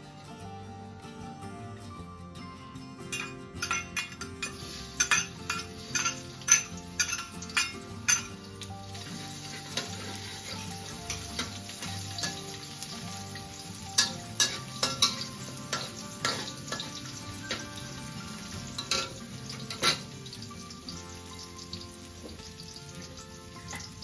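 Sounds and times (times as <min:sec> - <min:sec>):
garlic sizzling in a wok: 0:03.1 - 0:24.0
metal spatula scraping a wok: 0:09.1 - 0:12.5, 0:13.9 - 0:17.7.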